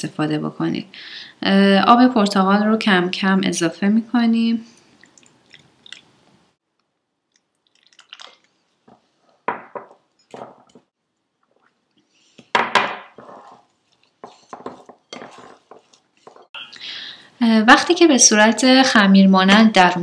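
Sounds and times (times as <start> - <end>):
spatula scraping glass bowl: 13.1 - 16.6.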